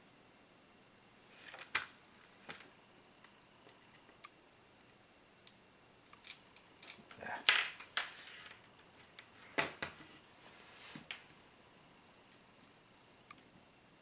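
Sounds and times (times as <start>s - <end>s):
small parts clicking: 5.4s - 8.6s.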